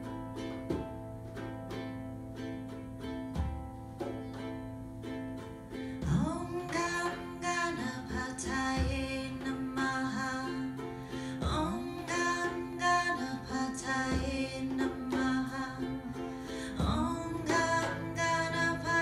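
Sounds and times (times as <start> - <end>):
strummed ukulele: 0.0 - 19.0
woman singing: 6.0 - 19.0
deep frame drum beats: 8.2 - 9.4, 11.4 - 11.9, 16.8 - 17.9.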